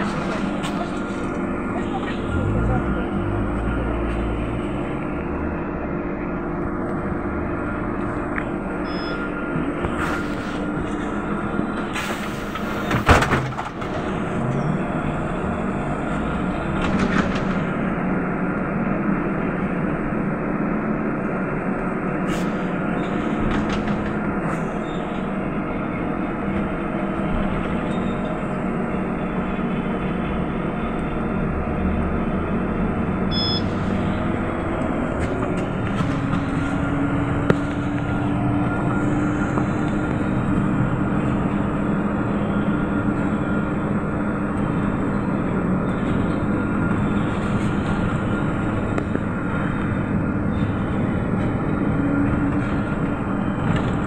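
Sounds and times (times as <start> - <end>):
bus doors closing clatter: 0.0 - 3.1, 8.0 - 18.0, 22.2 - 29.1, 33.3 - 54.0.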